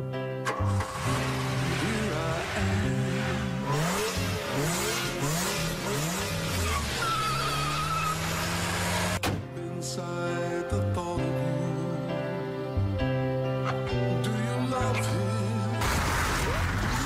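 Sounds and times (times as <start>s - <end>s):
car engine revving: 0.5s - 9.2s, 15.8s - 17.0s
tyres squealing: 5.8s - 9.2s.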